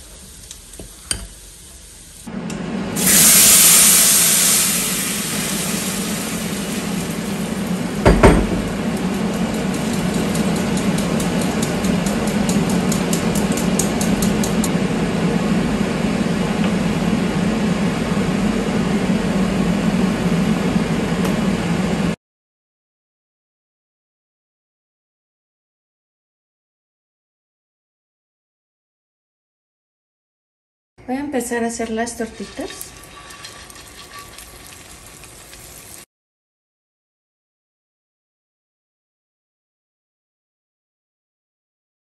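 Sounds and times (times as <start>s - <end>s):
puree sizzling in hot pot: 0.0s - 2.4s, 3.0s - 14.8s, 32.1s - 36.1s
knock: 8.1s - 8.7s.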